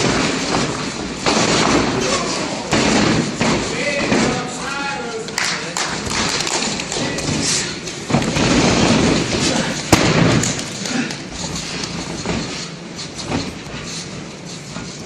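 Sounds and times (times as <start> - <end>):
bodies thudding on mat: 0.0 - 4.4, 7.2 - 13.9.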